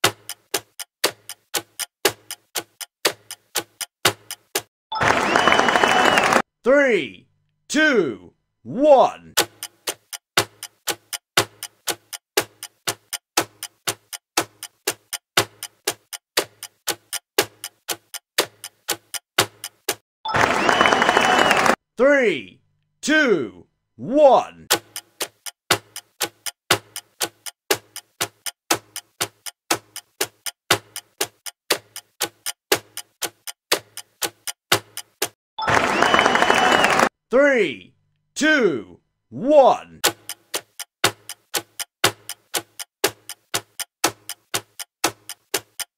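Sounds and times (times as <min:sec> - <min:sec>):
timer ticking: 0:00.0 - 0:04.7, 0:09.3 - 0:20.0, 0:24.6 - 0:35.4, 0:40.0 - 0:45.9.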